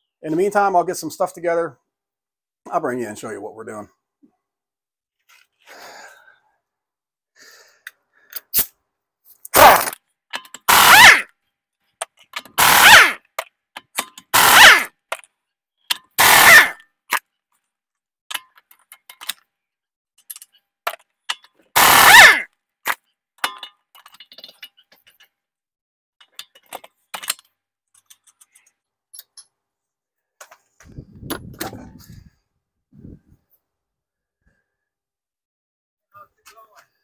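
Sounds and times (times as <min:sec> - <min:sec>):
pneumatic impact wrench hammering: 0:09.6 - 0:11.3, 0:12.1 - 0:15.3, 0:15.9 - 0:16.8, 0:21.8 - 0:22.5.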